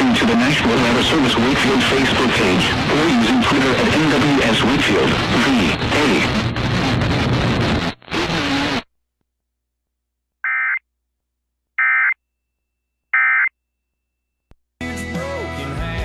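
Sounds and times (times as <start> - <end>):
music: 14.8 - 16.0.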